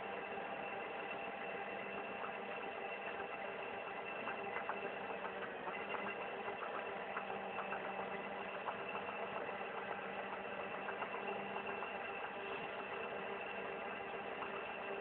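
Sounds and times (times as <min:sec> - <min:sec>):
faint irregular ticks: 0:01.0 - 0:15.0
tractor engine running: 0:02.7 - 0:15.0.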